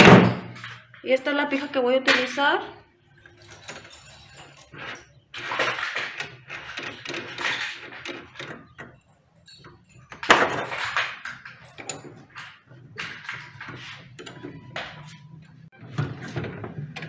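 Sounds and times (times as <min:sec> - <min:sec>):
drill chuck rattling and clicking: 0:05.4 - 0:12.5.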